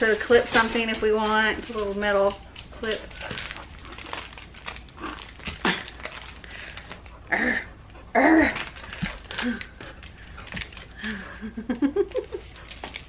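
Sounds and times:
woman laughing and exclaiming: 11.0s - 12.5s.

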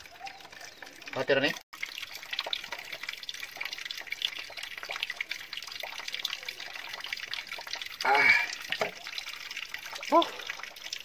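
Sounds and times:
small water splashes: 0.0s - 11.0s
water trickling into container: 0.0s - 11.0s.

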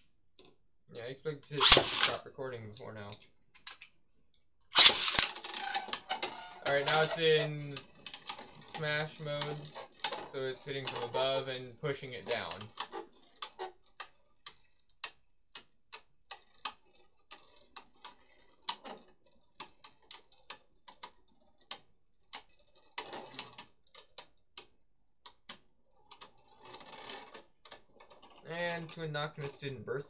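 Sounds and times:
spinning tops clashing plastic clicks: 1.5s - 2.2s, 4.8s - 11.5s, 25.3s - 29.6s.

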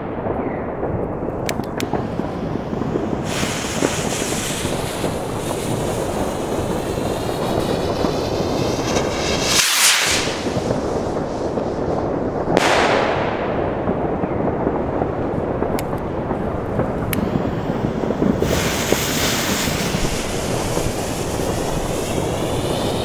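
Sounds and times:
firework bang: 0.0s - 23.0s
rocket rushing up: 1.7s - 13.7s, 17.0s - 23.0s
firework fuse hissing: 1.8s - 12.1s, 16.8s - 23.0s
steady low rush: 14.9s - 23.0s.

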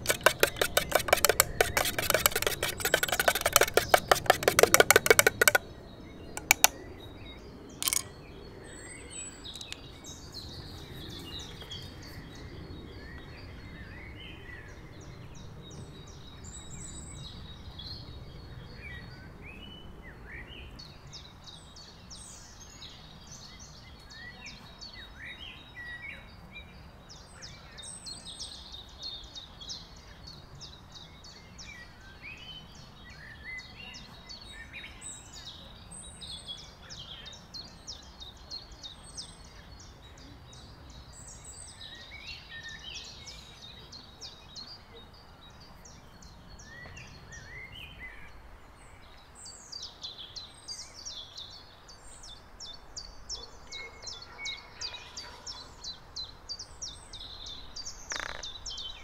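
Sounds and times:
sharp knock: 0.0s - 5.6s
small birds singing and chirping: 0.0s - 59.0s.

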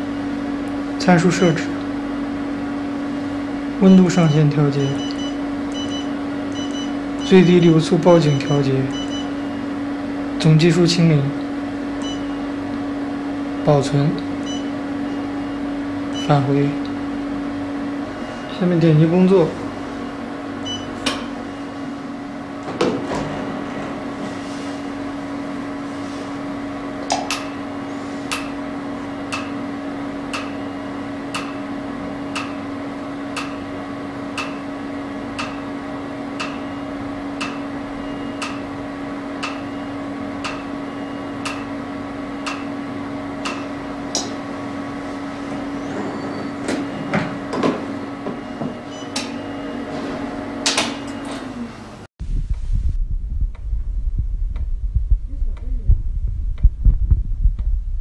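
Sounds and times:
cooling system hum: 0.0s - 58.0s.

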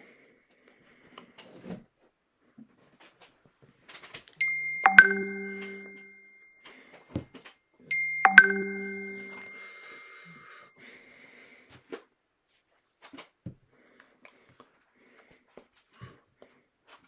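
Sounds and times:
two-tone chime: 4.4s - 6.6s, 7.9s - 10.5s.

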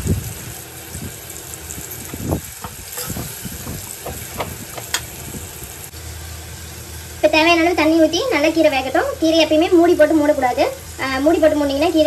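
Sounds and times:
water sizzling in hot pan: 0.0s - 12.0s
metal spatula scraping pan: 2.9s - 3.4s.

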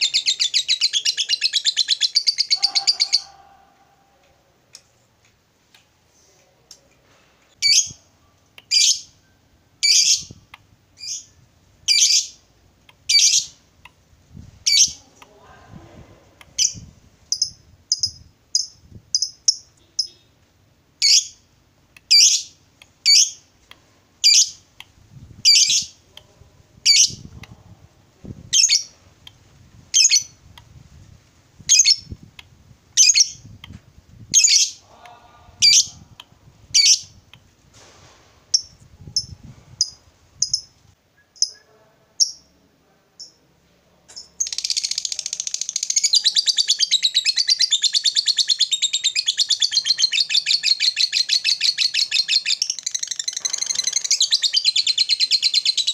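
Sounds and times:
bird calling and chattering: 0.0s - 3.5s, 44.2s - 55.9s.

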